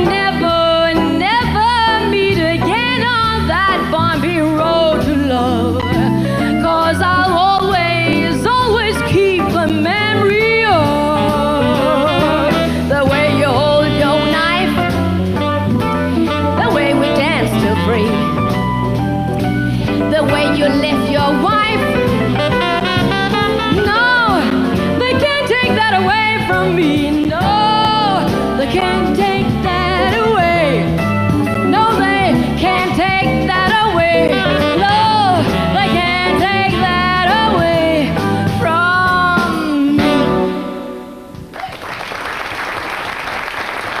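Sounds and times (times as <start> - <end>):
woman singing wordless lines: 0.0 - 14.9, 16.3 - 18.4, 20.0 - 22.0, 23.6 - 30.9, 31.6 - 40.9
jazz band playing: 0.0 - 41.5
audience applause: 41.5 - 44.0.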